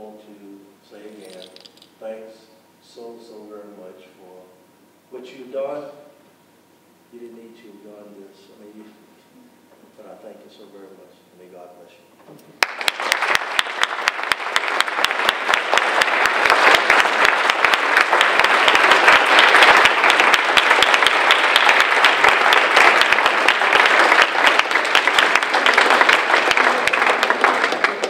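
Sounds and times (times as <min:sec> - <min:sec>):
large audience applauding: 0:12.6 - 0:28.0.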